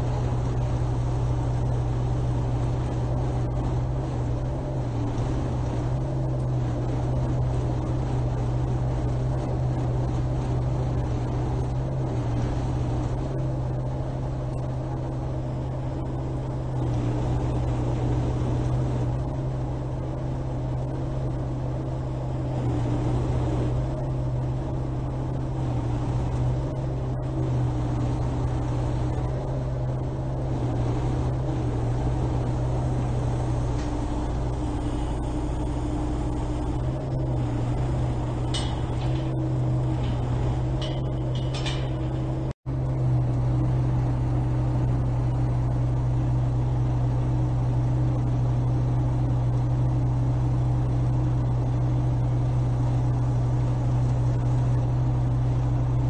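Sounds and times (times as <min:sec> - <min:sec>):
diesel truck engine running: 0:00.0 - 0:56.0
steel hull dragging: 0:30.7 - 0:42.6.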